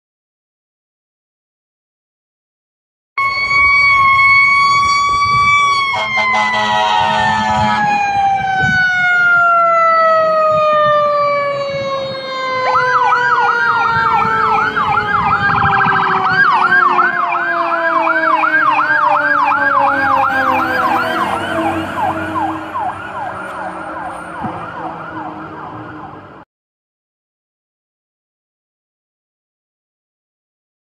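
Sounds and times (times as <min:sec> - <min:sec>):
electronic siren yelping: 0:03.2 - 0:26.4
mechanical siren winding down: 0:03.2 - 0:26.4.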